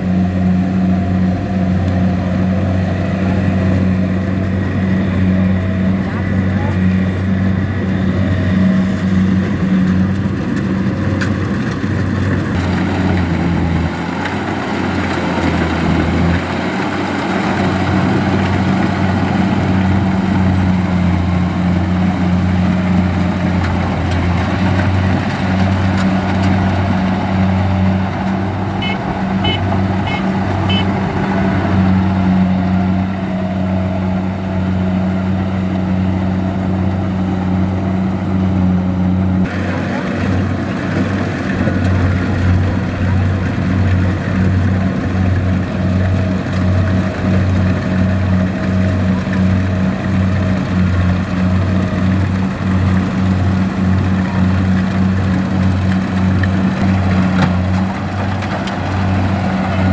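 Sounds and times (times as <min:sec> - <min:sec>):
combine harvester engine drone: 0:00.0 - 0:59.9.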